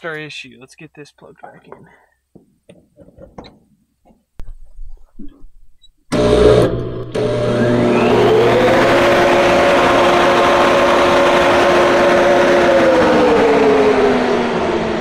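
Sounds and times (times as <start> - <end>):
fan whirring and humming: 6.1 - 15.0.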